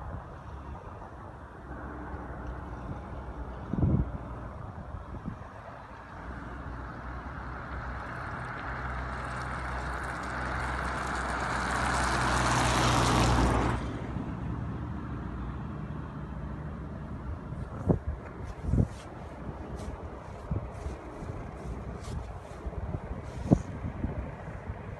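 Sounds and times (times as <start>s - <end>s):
truck engine drone: 0.0s - 24.9s
car driving past: 7.3s - 15.7s.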